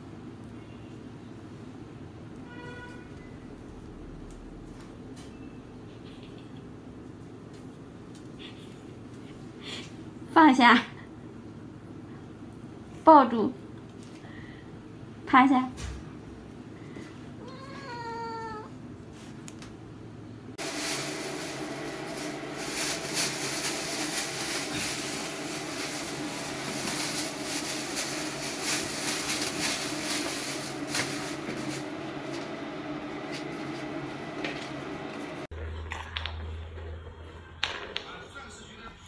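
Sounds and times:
cat meowing: 0:17.4 - 0:18.8
plastic bag rustling: 0:20.6 - 0:35.5.

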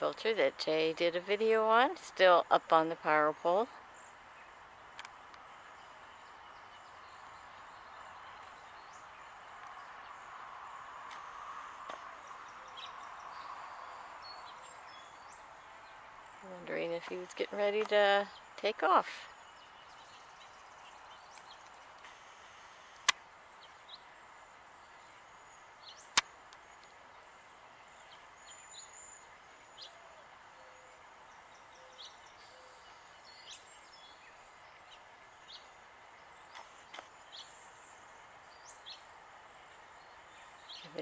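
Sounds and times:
faint bird chirps: 0:18.3 - 0:39.1.

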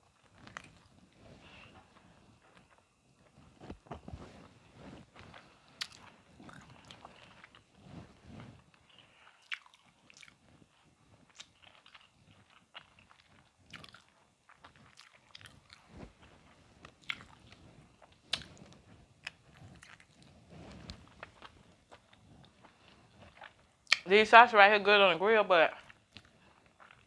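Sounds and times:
person chewing and lip smacking: 0:00.2 - 0:01.0, 0:05.2 - 0:07.7, 0:08.8 - 0:15.9, 0:16.8 - 0:20.3, 0:20.9 - 0:24.1, 0:25.8 - 0:27.0.

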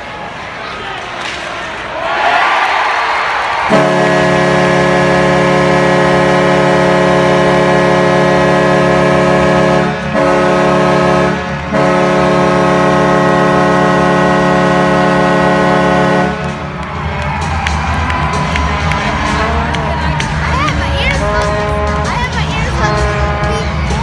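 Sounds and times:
air horn chord: 0:03.7 - 0:16.7, 0:18.5 - 0:19.9, 0:21.0 - 0:24.0.

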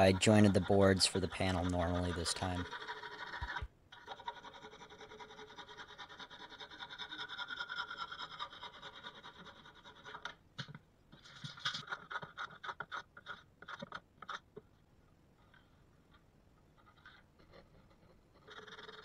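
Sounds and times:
hand saw cutting wood: 0:00.0 - 0:10.2.

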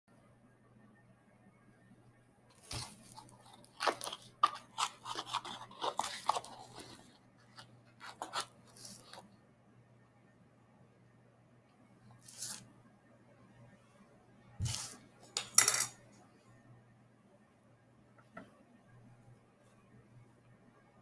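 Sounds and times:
faint steady hum: 0:00.1 - 0:21.0
paper crinkling and crunching: 0:02.5 - 0:09.2.

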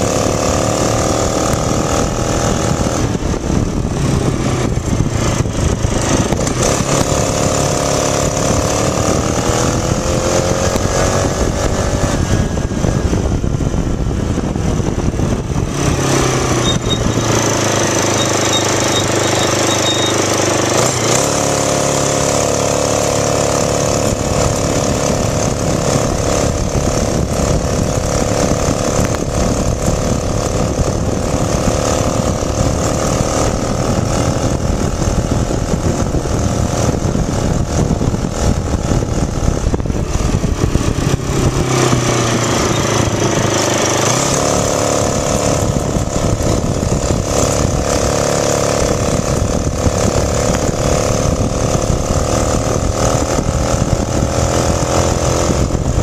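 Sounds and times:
engine-like drone: 0:00.0 - 0:56.0
low rumble: 0:01.3 - 0:17.8, 0:23.9 - 0:43.9.

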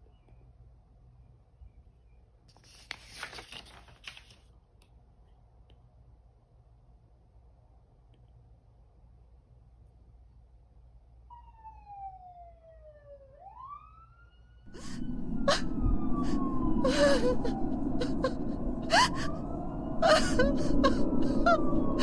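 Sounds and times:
siren wailing: 0:11.3 - 0:22.0.

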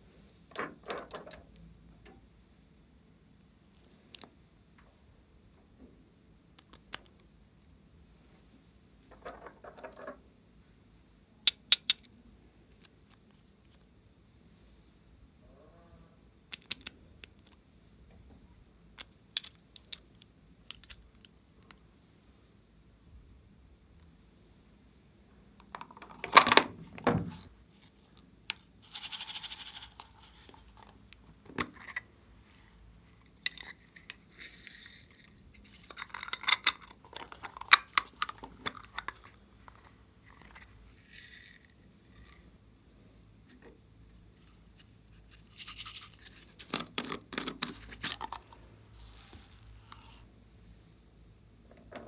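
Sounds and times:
beads and glitter pouring: 0:28.8 - 0:30.4, 0:34.3 - 0:35.8, 0:41.0 - 0:42.4.

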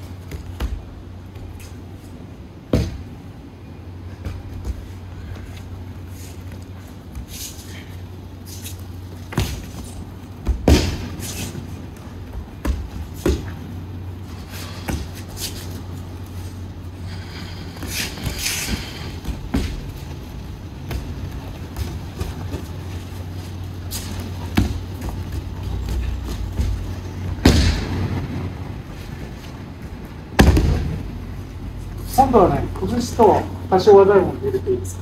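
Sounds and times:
steady low hum: 0:00.0 - 0:35.0
thuds of falls on mats: 0:02.7 - 0:03.1, 0:10.4 - 0:11.6, 0:17.7 - 0:20.0, 0:23.8 - 0:28.5, 0:30.4 - 0:31.1.

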